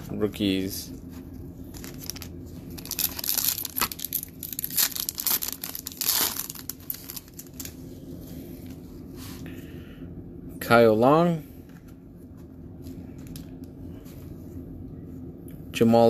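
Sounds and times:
foil wrapper tearing and crinkling: 1.7s - 7.8s.

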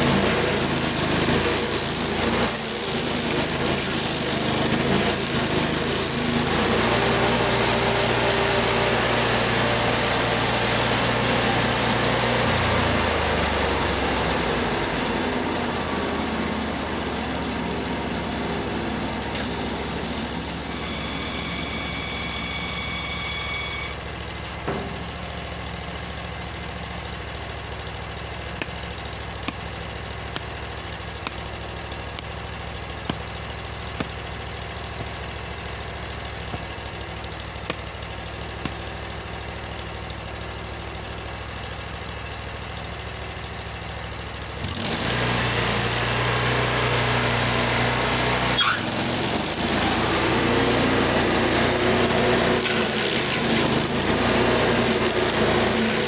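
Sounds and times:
stump grinder engine: 0.0s - 56.0s
axe chopping wood: 28.6s - 34.3s, 37.5s - 39.1s.

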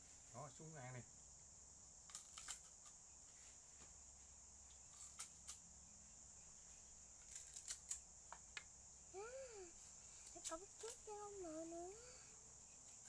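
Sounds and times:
high-pitched insect drone: 9.0s - 13.0s.

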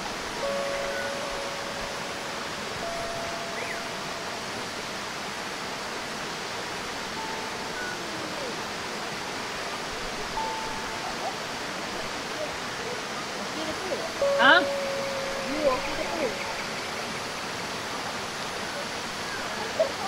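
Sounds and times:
water rushing over rocks: 0.0s - 20.0s.

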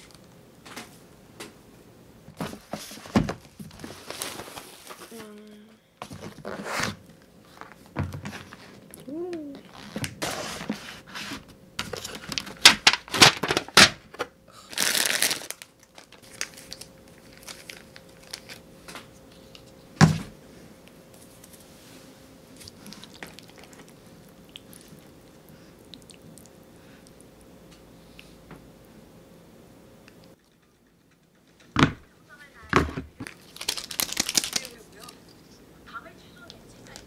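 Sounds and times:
cardboard and plastic crinkling: 2.4s - 5.4s, 9.8s - 18.6s, 32.7s - 35.2s.

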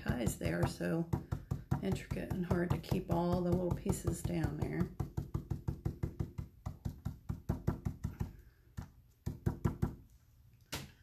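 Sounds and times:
brush tapping on plastic stencil: 0.0s - 10.9s.

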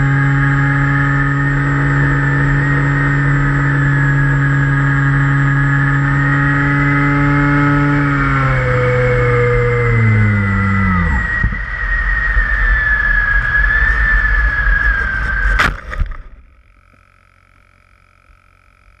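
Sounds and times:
electric motor spinning down: 0.0s - 16.5s
plane hitting the grass: 13.6s - 16.5s.

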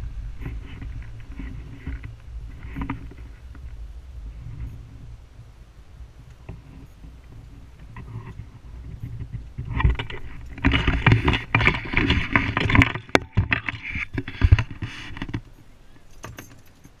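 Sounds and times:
camera handling rubbing and knocks: 6.5s - 15.5s.

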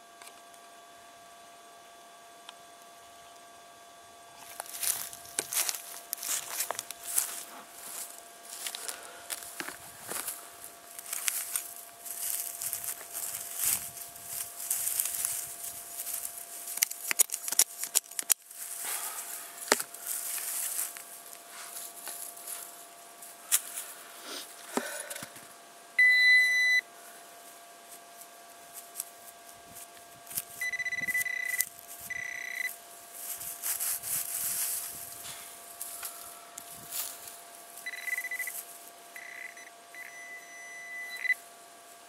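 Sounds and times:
metal detector beeping: 26.0s - 26.9s, 30.5s - 32.8s, 37.8s - 41.4s.

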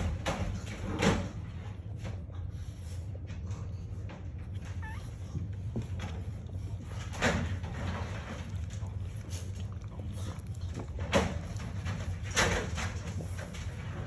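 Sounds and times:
puppies snuffling: 0.0s - 14.0s
steady low hum: 0.0s - 14.0s
puppy squeak: 4.6s - 5.2s.

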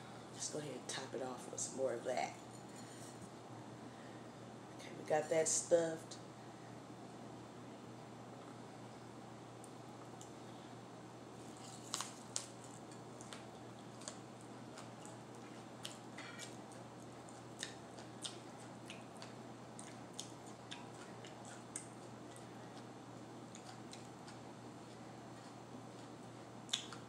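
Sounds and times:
crunchy chewing of pepper: 11.4s - 27.0s.

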